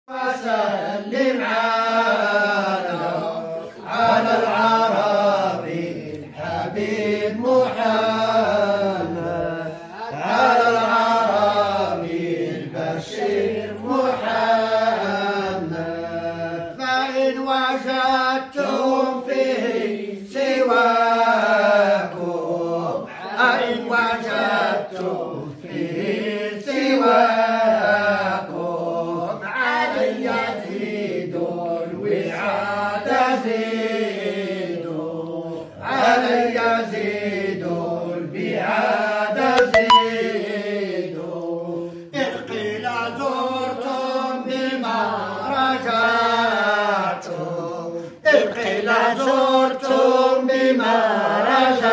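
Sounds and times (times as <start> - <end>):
breaths: 9.7 - 10.0, 41.8 - 42.1
voices chanting melodic phrases: 39.6 - 40.4.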